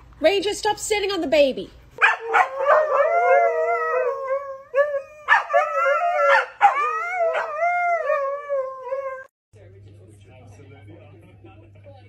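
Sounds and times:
huskies howling: 2.0s - 9.3s.

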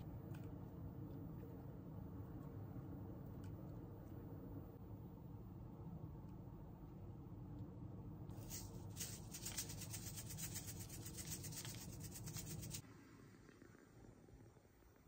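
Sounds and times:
seeds grinding in hand grinder: 8.4s - 12.8s.

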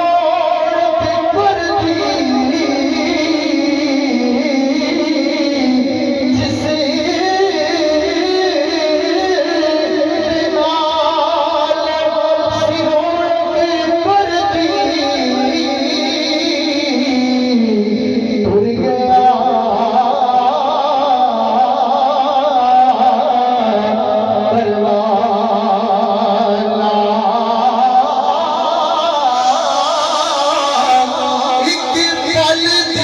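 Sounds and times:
man singing into a microphone: 0.0s - 33.0s.

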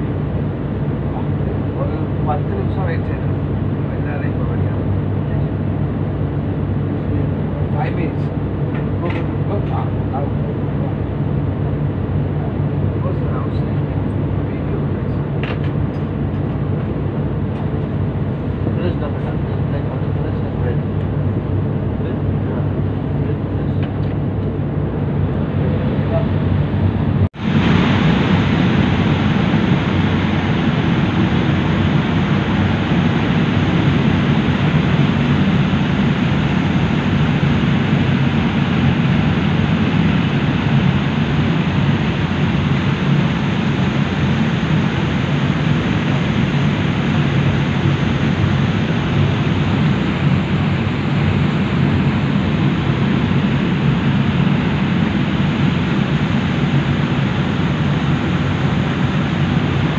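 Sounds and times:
ferry engines droning: 0.0s - 59.9s
rushing of churning wake: 27.2s - 59.9s.

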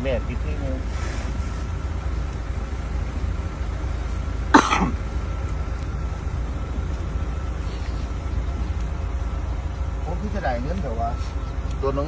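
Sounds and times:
person coughing: 4.5s - 5.0s.

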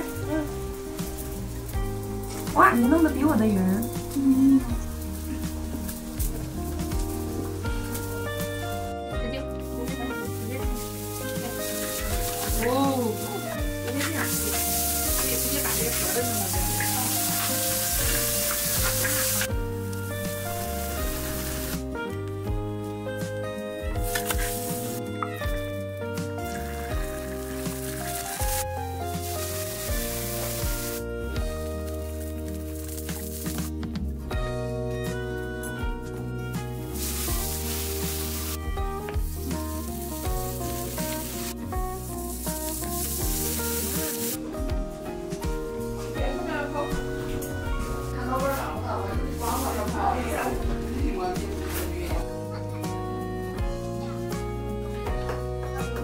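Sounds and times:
food sizzling in hot oil: 0.0s - 22.0s, 23.9s - 33.9s, 36.6s - 44.5s
background music: 0.0s - 56.0s.

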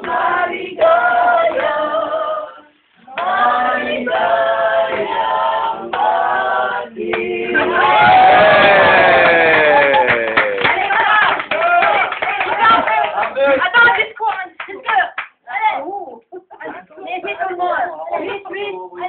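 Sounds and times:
group singing: 0.0s - 9.6s.

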